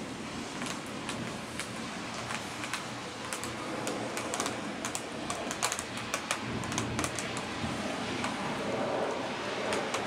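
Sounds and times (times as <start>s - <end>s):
sharp ticks: 1.1s - 7.5s.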